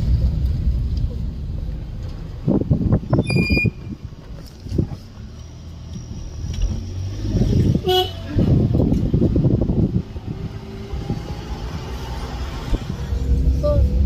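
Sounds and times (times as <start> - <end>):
vehicle rumbling on road: 0.0 - 14.0
car horn toot: 7.7 - 8.4.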